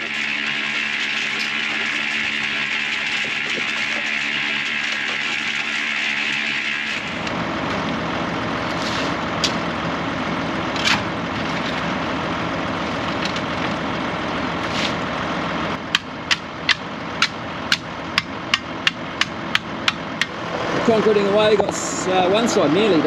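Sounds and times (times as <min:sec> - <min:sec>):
tractor engine idling: 0:00.0 - 0:23.0
sharp taps on concrete: 0:15.9 - 0:20.4.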